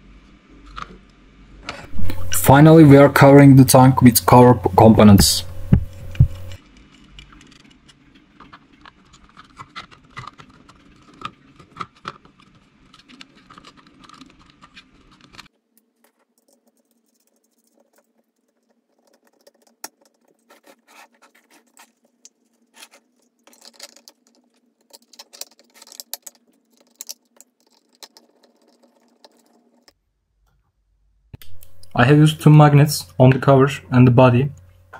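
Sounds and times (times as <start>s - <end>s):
plastic parts clicking and tapping: 5.7s - 30.0s.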